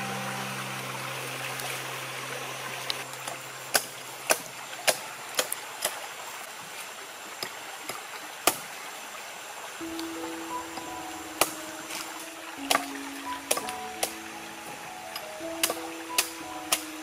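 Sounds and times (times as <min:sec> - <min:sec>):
stream water running: 0:00.0 - 0:17.0
hatchet chopping coconut husk: 0:03.7 - 0:06.0, 0:07.4 - 0:08.8, 0:12.6 - 0:14.2.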